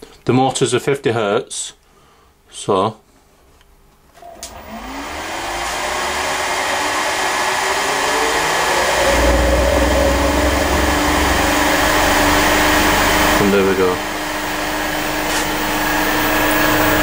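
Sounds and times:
electric motor switch click: 0:04.2 - 0:04.7
electric motor rising whine: 0:04.2 - 0:17.0
deep motor hum: 0:04.5 - 0:17.0.

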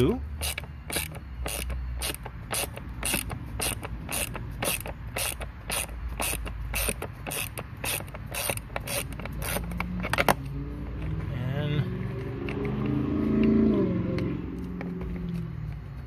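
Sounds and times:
ratcheting driver clicking: 0:00.3 - 0:10.4.

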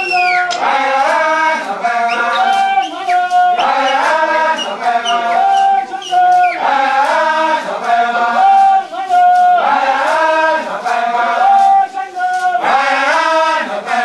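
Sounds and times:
faint percussive ticks: 0:00.0 - 0:14.0
group of voices chanting: 0:00.0 - 0:14.0.

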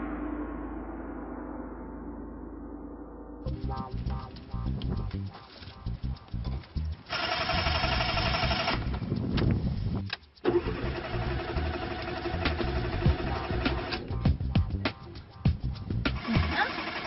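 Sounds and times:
starter motor cranking: 0:07.0 - 0:09.2, 0:10.1 - 0:14.1, 0:16.1 - 0:17.0.

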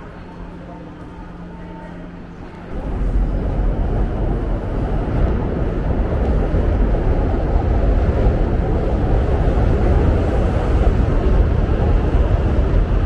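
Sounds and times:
city street noise: 0:00.0 - 0:13.0
indoor hum: 0:00.0 - 0:13.0
wind rumbling on microphone: 0:02.7 - 0:13.0.

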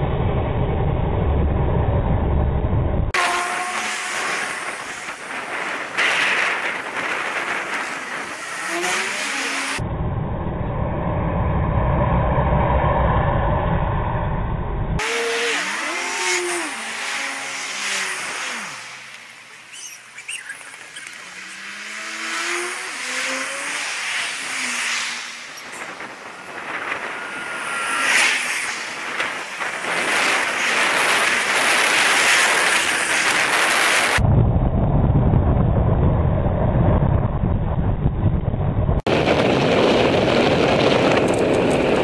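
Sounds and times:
tyre and road noise: 0:00.0 - 0:10.3, 0:11.0 - 0:42.0
passing cars accelerating: 0:03.2 - 0:09.8, 0:15.0 - 0:34.2.

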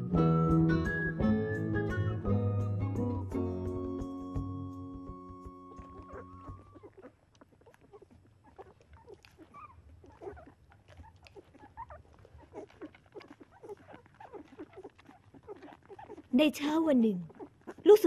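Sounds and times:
puppies squeaking and whimpering: 0:05.3 - 0:18.0.

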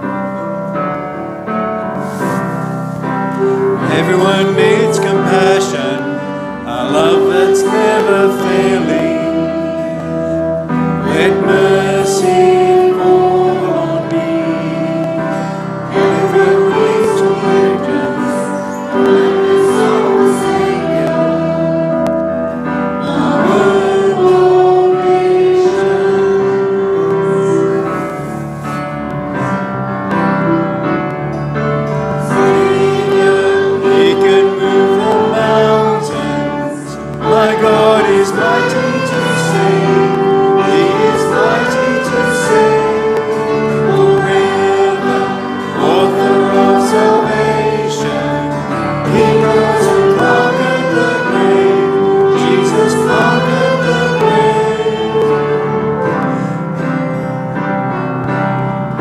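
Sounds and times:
congregation singing: 0:00.0 - 0:59.0
man leading singing: 0:03.5 - 0:22.0, 0:32.2 - 0:56.4.

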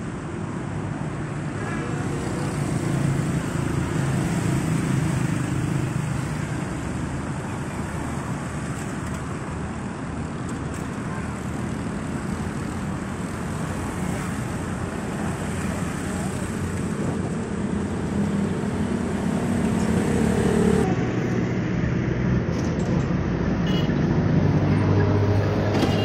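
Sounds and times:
cars driving by: 0:00.0 - 0:26.0.

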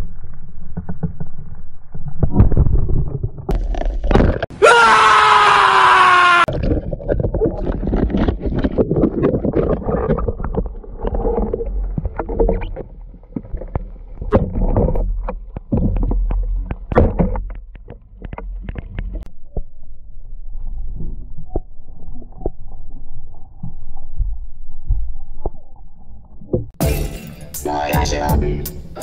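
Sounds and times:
muffled water rushing underwater: 0:06.5 - 0:26.8.

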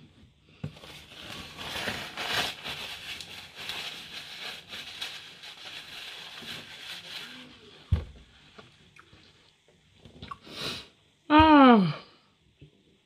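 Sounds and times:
paper napkin rustling: 0:00.7 - 0:08.6.

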